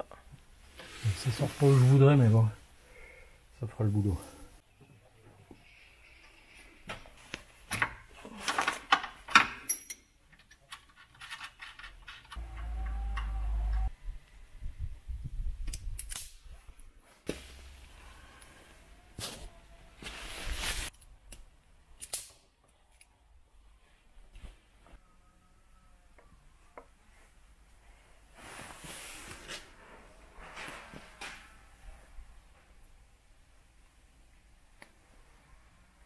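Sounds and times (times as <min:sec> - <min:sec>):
wire stripping tool clicks and snips: 0:15.6 - 0:16.4, 0:20.9 - 0:23.1.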